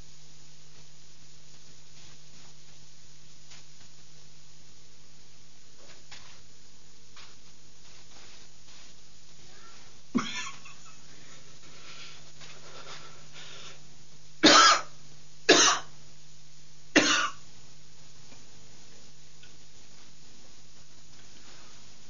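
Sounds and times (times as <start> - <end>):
man coughing harshly: 10.2 - 10.9, 14.4 - 15.9, 17.0 - 17.4.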